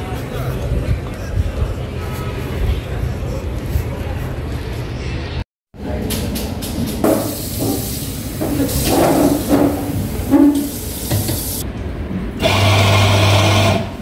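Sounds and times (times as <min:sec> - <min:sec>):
coffee machine humming and hissing: 0:12.4 - 0:14.0.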